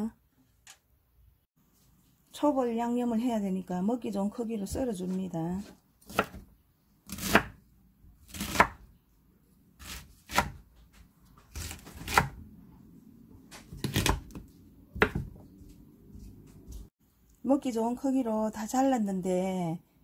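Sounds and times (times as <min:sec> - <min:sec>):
knife chopping on wooden board: 0:05.6 - 0:06.5, 0:07.1 - 0:07.6, 0:08.3 - 0:08.9, 0:09.8 - 0:12.4, 0:13.5 - 0:15.4.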